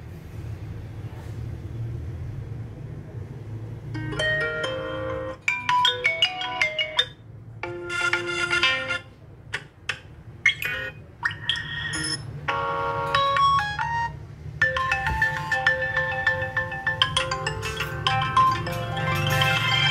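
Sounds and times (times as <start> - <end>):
phone ringtone previews: 10.5 - 19.9.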